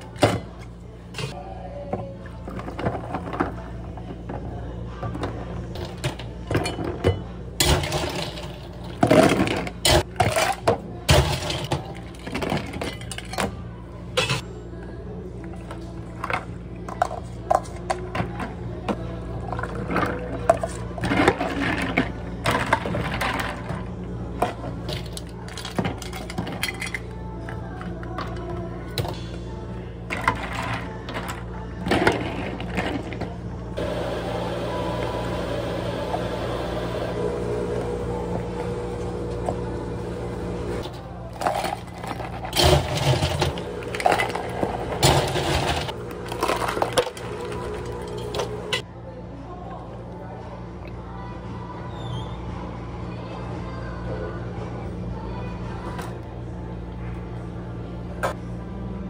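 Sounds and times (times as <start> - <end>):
machine hum: 29.5 - 48.8
spoon stirring ice in cup: 41.3 - 48.8.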